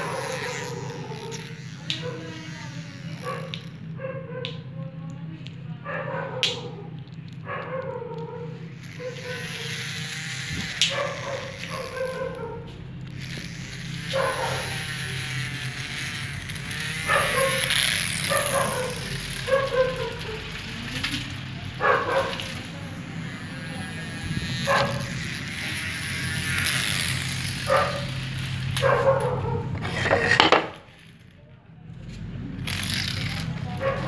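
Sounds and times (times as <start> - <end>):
steady low hum: 0.0 - 34.0
dog barking: 3.2 - 4.6, 5.8 - 9.6, 10.9 - 12.7, 14.1 - 14.8, 17.1 - 20.4, 21.8 - 22.5, 24.7 - 25.1, 27.7 - 28.1, 28.8 - 29.8, 33.8 - 34.0.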